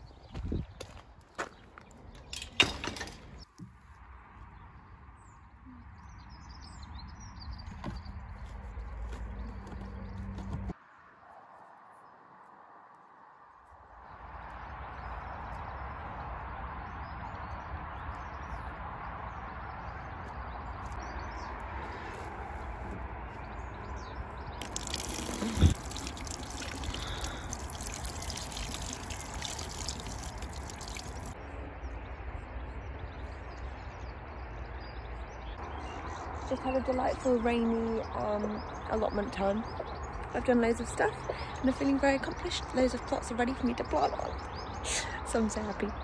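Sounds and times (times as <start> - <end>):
water running from a tap: 24.6 - 31.4.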